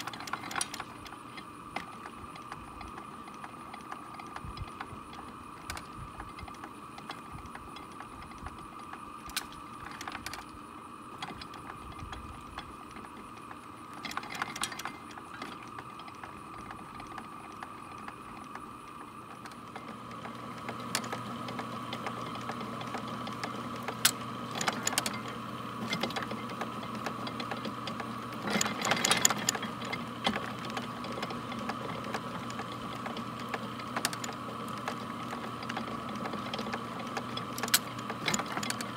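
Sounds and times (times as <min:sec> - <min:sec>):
reaper mechanism whirring: 0:00.0 - 0:38.9.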